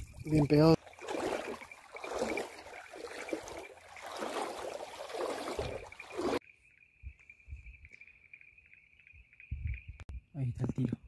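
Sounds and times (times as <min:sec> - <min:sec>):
water splashing and running off: 0:00.0 - 0:06.4.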